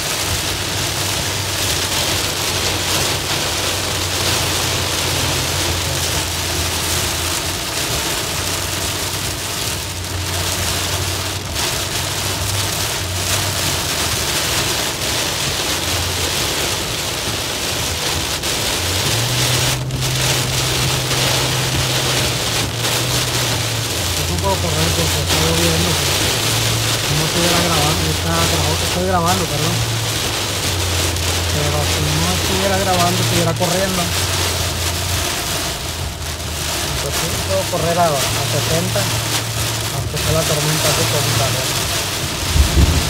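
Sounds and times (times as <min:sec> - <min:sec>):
truck driving drone: 0:00.0 - 0:07.4, 0:18.4 - 0:33.5, 0:41.0 - 0:43.0
heavy rain on windshield: 0:00.0 - 0:43.0.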